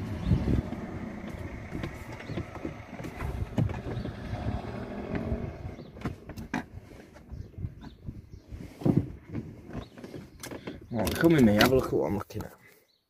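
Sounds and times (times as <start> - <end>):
low rumbling: 0.0 - 10.0.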